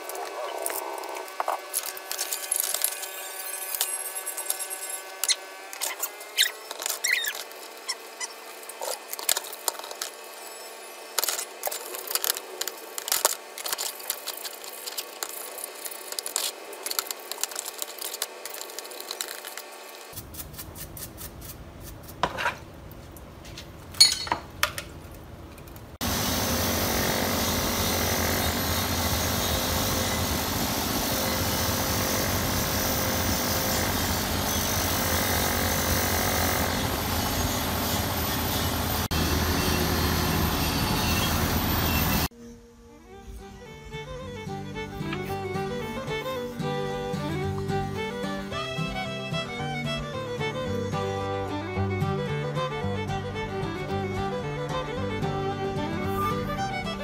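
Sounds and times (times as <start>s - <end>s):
power tool running: 0.0s - 20.2s, 26.0s - 51.6s
metal tools clicking and scraping: 24.0s - 24.8s.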